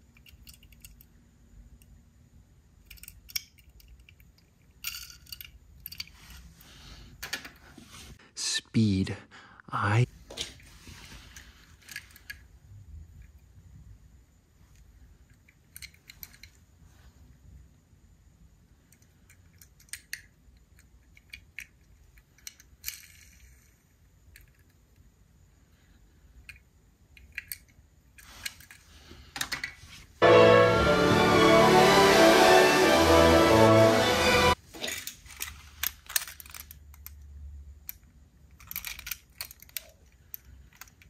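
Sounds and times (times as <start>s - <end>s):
toy car clicks: 0.0s - 1.1s, 2.8s - 6.1s, 15.3s - 16.6s, 18.9s - 25.0s, 26.4s - 28.8s, 35.3s - 41.0s.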